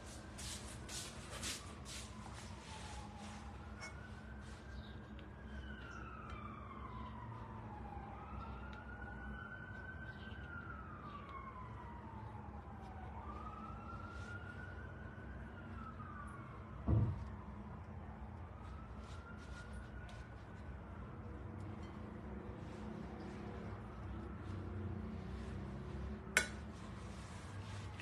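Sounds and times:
faint siren wailing: 0.0s - 28.0s
dull thump: 16.8s - 17.3s.

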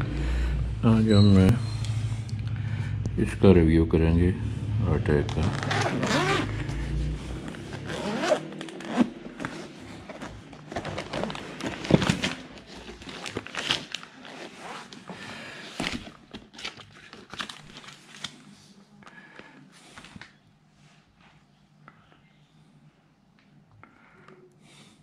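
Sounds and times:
case being unzipped: 5.3s - 6.8s, 7.4s - 15.0s
paper manual rustling: 7.4s - 18.6s.

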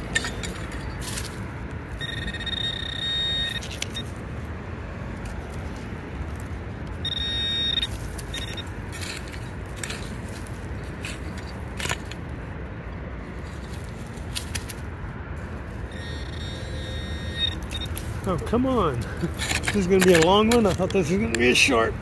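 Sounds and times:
gravel digging clicks and scrapes: 0.0s - 22.0s
metal detector high buzzing: 2.0s - 4.0s, 7.0s - 8.6s, 15.9s - 18.0s.

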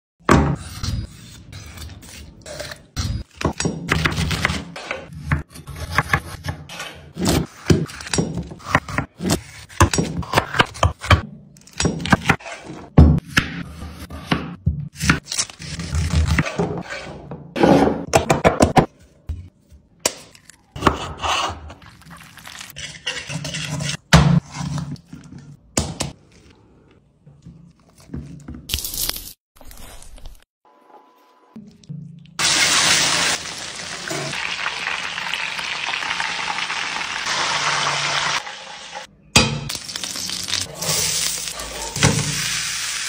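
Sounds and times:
knife scraping and slicing: 0.4s - 18.1s, 20.1s - 25.4s.

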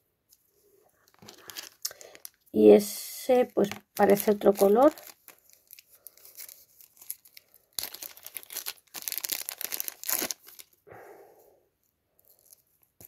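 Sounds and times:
plastic bag crinkling: 1.0s - 2.5s, 3.4s - 10.8s, 12.2s - 12.8s.

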